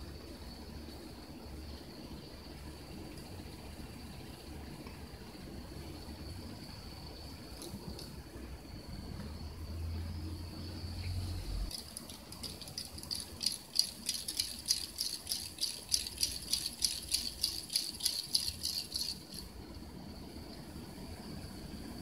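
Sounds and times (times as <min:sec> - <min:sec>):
cat toy rattling: 0:11.7 - 0:19.5.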